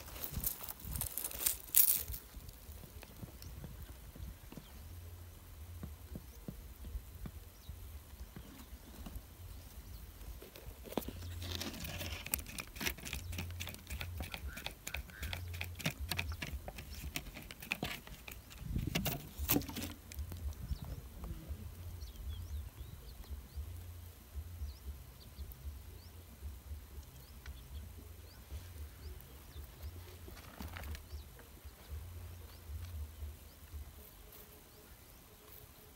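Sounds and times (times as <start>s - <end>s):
fingers scraping rough rock: 10.4s - 20.4s
wind rumble on microphone: 18.2s - 23.8s.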